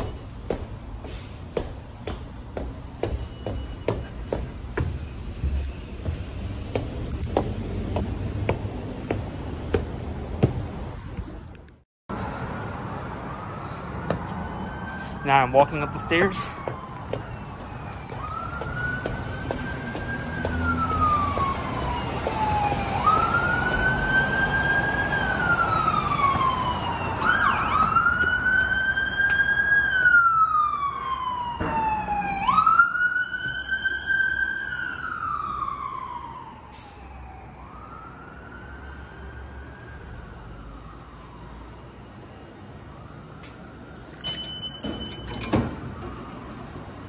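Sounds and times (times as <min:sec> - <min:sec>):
low traffic rumble: 0:00.0 - 0:47.0
emergency vehicle siren wailing: 0:12.4 - 0:47.0.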